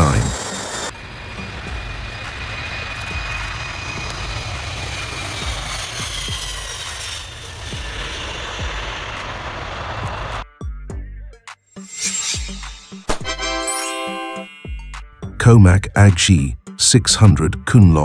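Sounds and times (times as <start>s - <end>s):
jet engines roaring at takeoff: 0.0s - 10.4s
faint high whine: 11.8s - 14.8s.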